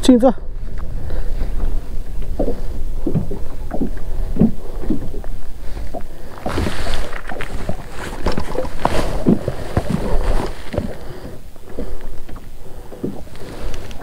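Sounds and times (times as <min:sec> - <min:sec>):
wind rumble on microphone: 0:00.0 - 0:14.0
water slapping kayak hull: 0:00.5 - 0:14.0.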